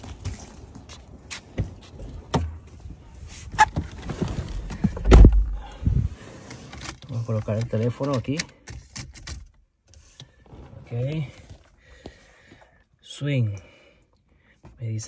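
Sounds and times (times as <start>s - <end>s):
footsteps: 0.0s - 6.1s
heavy low thump: 4.8s - 6.1s.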